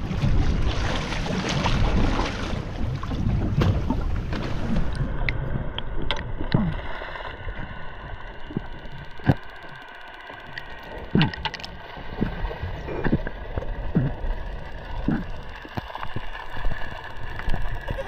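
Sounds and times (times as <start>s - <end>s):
muffled underwater rumble: 0.0s - 18.0s
sharp clicks and pops: 4.9s - 6.8s, 8.5s - 12.4s, 14.9s - 16.4s.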